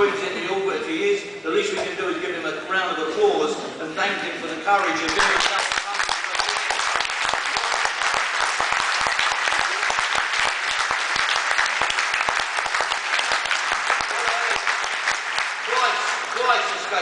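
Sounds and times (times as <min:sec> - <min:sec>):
large audience applauding: 0:04.8 - 0:17.0.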